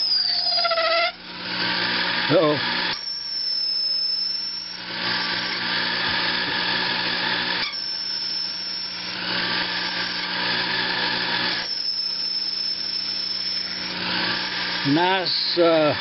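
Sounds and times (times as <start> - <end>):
thin high whine: 0.0 - 1.2, 2.3 - 5.5, 7.6 - 10.3, 11.4 - 16.0
lathe motor hum: 0.0 - 16.0.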